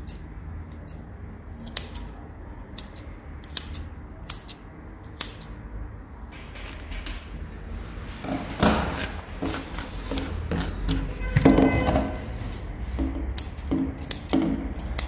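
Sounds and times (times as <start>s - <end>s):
scissors snipping hair: 0.0s - 2.1s, 2.7s - 5.6s, 12.0s - 15.0s.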